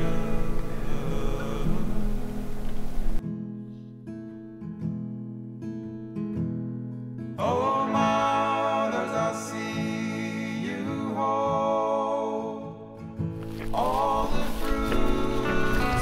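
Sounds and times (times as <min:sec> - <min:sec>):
person singing: 0:00.0 - 0:02.5, 0:07.4 - 0:16.0
acoustic guitar picking: 0:00.0 - 0:12.0, 0:12.6 - 0:16.0.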